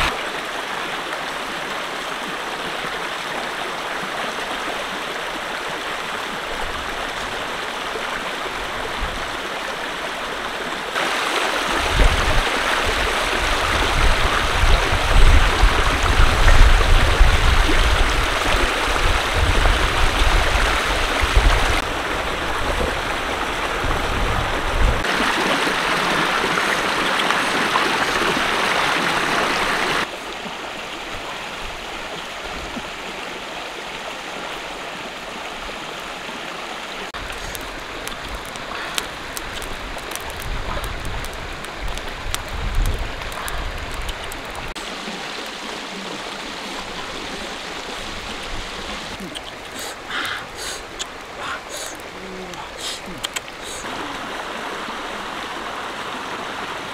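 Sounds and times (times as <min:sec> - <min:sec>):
stream rushing over stones: 0:00.0 - 0:56.9.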